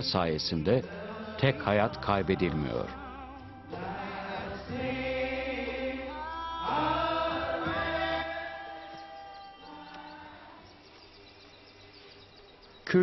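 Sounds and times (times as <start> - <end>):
congregation singing a hymn: 0.8 - 10.8.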